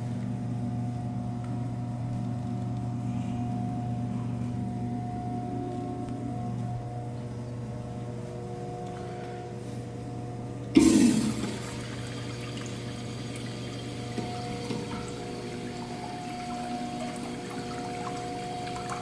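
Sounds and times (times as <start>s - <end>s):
urinal flushing: 10.7s - 19.0s
water running down the bowl: 11.3s - 19.0s.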